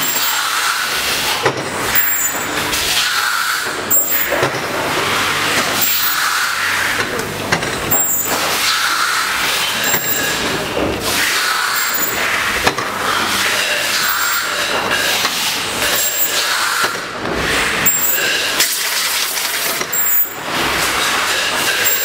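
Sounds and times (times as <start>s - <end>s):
machine clicks: 9.5s - 11.1s, 13.9s - 17.0s, 21.7s - 22.0s.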